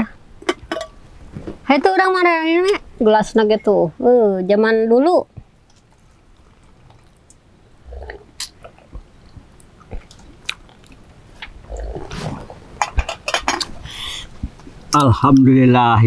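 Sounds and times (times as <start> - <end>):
people slurping and swallowing: 5.7 - 14.5.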